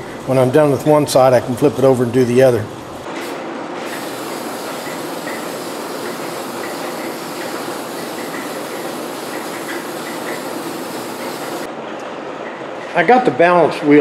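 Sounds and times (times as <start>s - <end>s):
aerosol spray can hissing: 3.9s - 11.7s.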